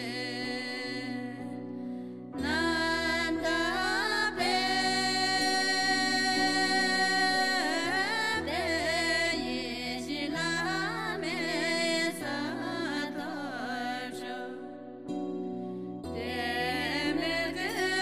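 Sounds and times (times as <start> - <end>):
sustained instrumental backing: 1.8 - 18.0
person singing wavering melody: 2.4 - 14.8.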